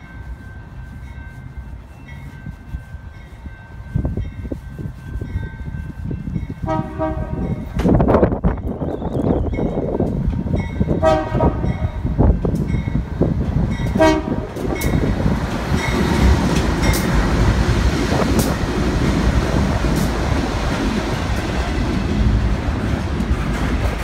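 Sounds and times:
freight train rumbling past: 0:00.0 - 0:24.0
wheels clicking on rails: 0:00.0 - 0:24.0
locomotive horn blasts: 0:06.6 - 0:07.8, 0:10.9 - 0:12.1, 0:13.9 - 0:14.9.

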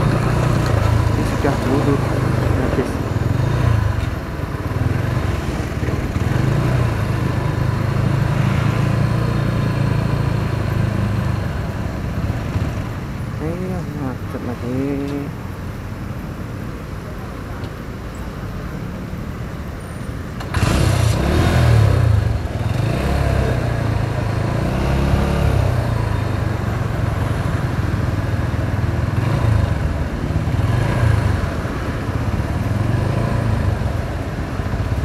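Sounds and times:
motorcycle engine revving: 0:00.0 - 0:11.5, 0:20.4 - 0:35.0
road noise: 0:00.0 - 0:35.0.

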